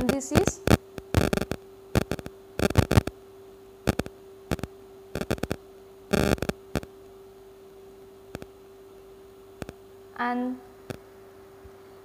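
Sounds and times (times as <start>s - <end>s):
steady electrical hum: 0.0s - 12.0s.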